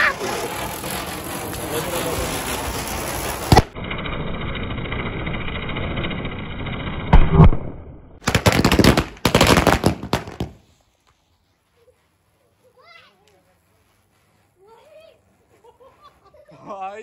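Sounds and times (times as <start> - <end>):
rapid firecracker bursts: 0.0 - 3.8, 8.2 - 10.8
ground spinner firework hissing: 0.0 - 7.2, 8.2 - 17.0.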